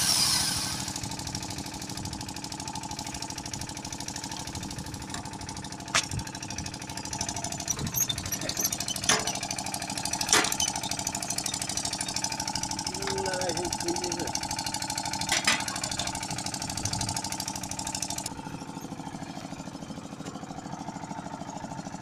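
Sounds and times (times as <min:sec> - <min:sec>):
small motor running with pulsing beat: 0:00.0 - 0:15.2.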